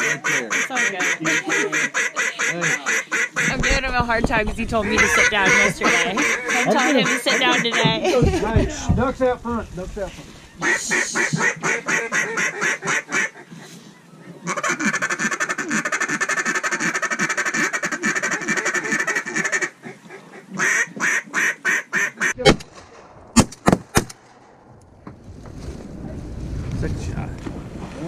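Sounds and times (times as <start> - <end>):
duck call feed chuckle: 0.0 - 3.6, 4.8 - 8.6, 10.6 - 13.8, 14.4 - 20.0
duck call quacks: 0.0 - 3.8, 4.8 - 8.0, 10.6 - 13.4, 14.4 - 20.0, 20.6 - 22.4
sharp knocks: 7.8 - 9.4, 23.4 - 24.2.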